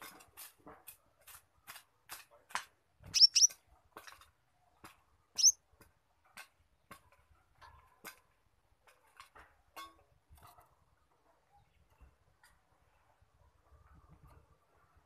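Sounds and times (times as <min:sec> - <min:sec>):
bird high rising squeaks: 0:03.1 - 0:03.5, 0:05.4 - 0:05.6
bird ticking chips: 0:03.1 - 0:03.5, 0:05.3 - 0:05.6.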